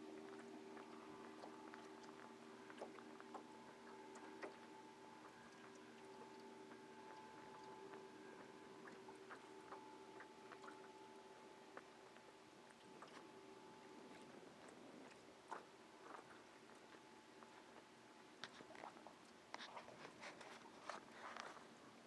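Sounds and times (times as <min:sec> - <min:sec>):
faint steady hum: 0:00.0 - 0:22.0
soft clicks and ticks: 0:00.2 - 0:11.0.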